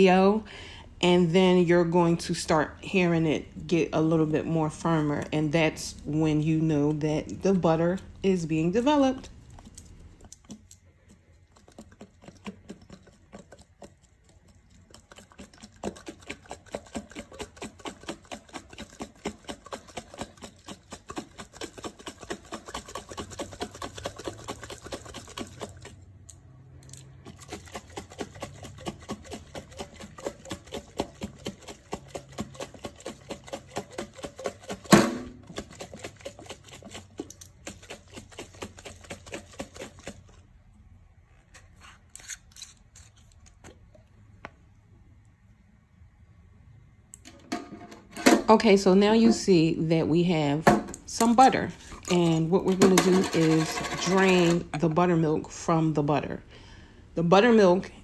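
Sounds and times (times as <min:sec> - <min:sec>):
cream shaken in glass jar: 0:11.1 - 0:26.0, 0:27.2 - 0:40.4, 0:51.1 - 0:54.8.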